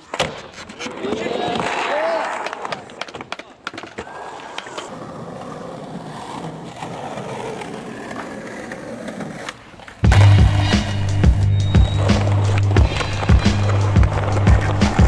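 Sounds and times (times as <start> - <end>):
skateboard wheels rolling on concrete: 0.0 - 15.0
music with heavy bass beat: 10.0 - 15.0.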